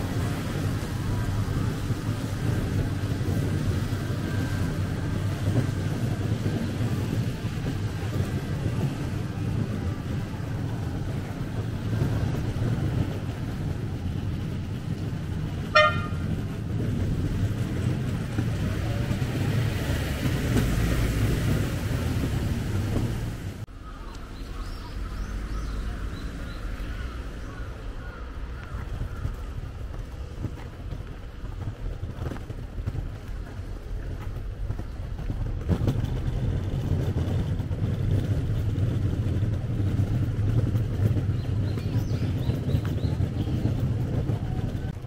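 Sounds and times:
street rumble: 0.0s - 45.0s
car horn toot: 15.7s - 16.3s.

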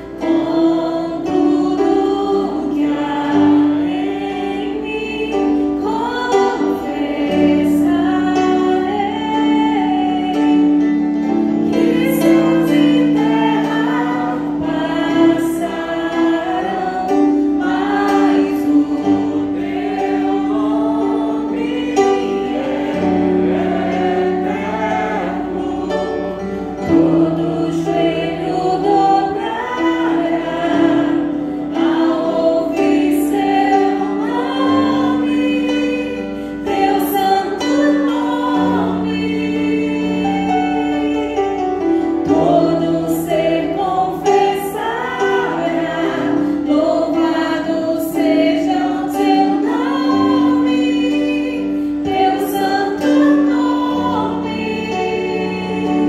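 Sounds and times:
keyboard sustained chords: 0.0s - 56.0s
woman singing into microphone: 26.9s - 41.6s, 42.3s - 56.0s.

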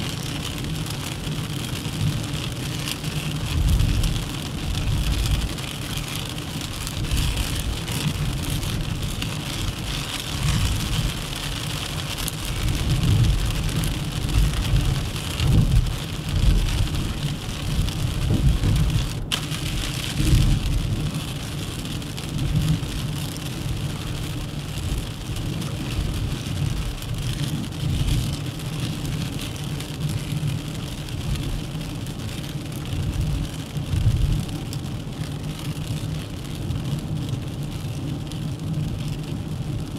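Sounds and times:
low engine rumble: 0.1s - 35.8s.

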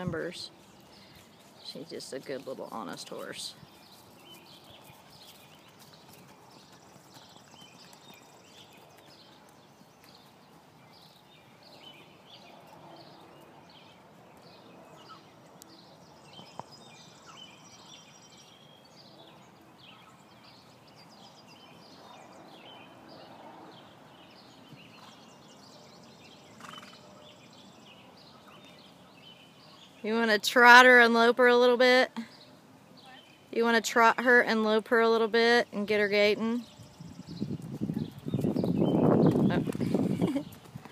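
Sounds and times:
horse hoofbeats on grass: 0.0s - 13.2s, 37.2s - 40.9s.

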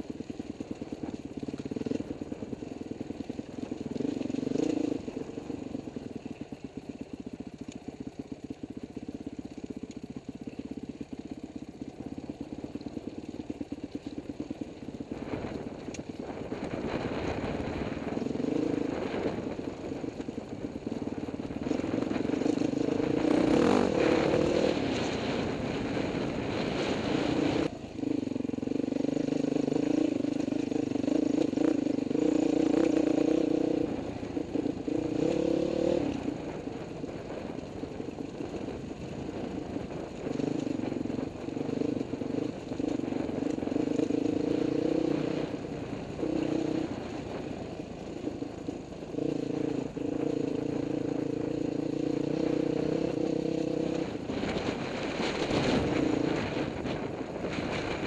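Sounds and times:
dirt bike engine revving: 3.0s - 5.8s, 20.9s - 36.6s, 38.2s - 58.0s.

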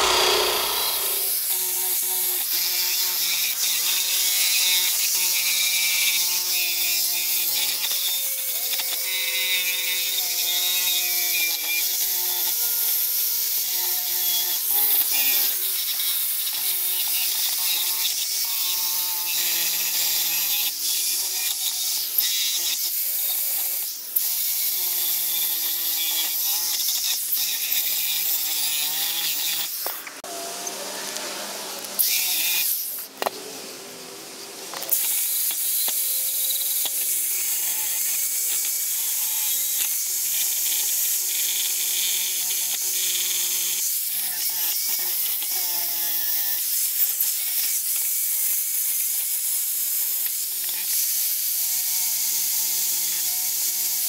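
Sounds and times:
drill wire wheel scratching metal: 0.0s - 1.7s.

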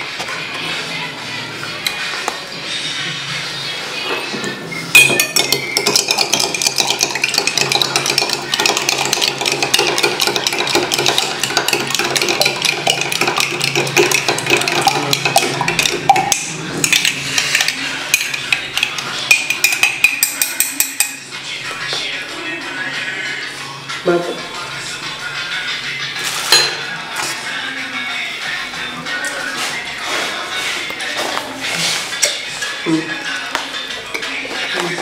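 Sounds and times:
spoon clinking in glass jar: 4.9s - 21.2s, 26.5s - 26.8s.

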